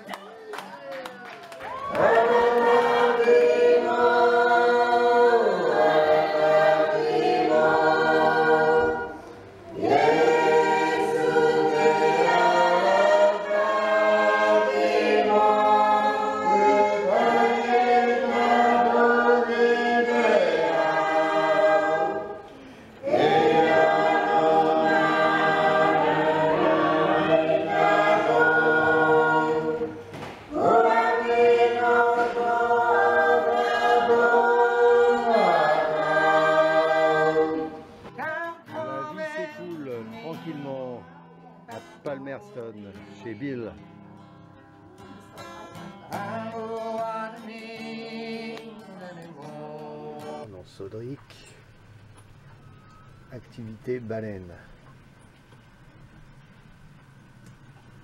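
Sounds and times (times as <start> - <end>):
choir singing a hymn unaccompanied: 1.9 - 40.5, 45.8 - 50.5.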